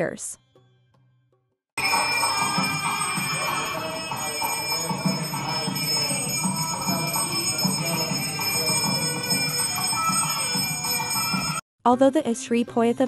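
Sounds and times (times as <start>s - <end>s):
hand bell ringing rapidly: 1.8s - 11.6s
music with regular beat: 1.8s - 11.6s.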